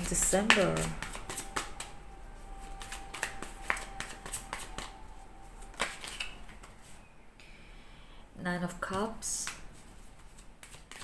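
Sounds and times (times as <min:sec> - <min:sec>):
cards being shuffled: 0:00.1 - 0:02.0, 0:02.6 - 0:05.0, 0:05.6 - 0:07.0, 0:09.4 - 0:11.0.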